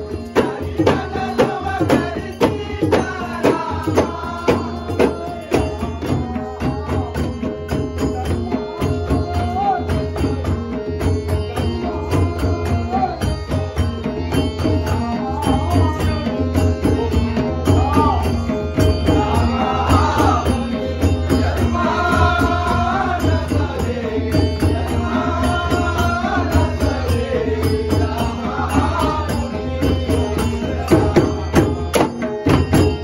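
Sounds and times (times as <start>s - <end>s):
man singing: 0.0s - 7.3s, 14.6s - 33.0s
hand drums in fast folk rhythm: 0.0s - 33.0s.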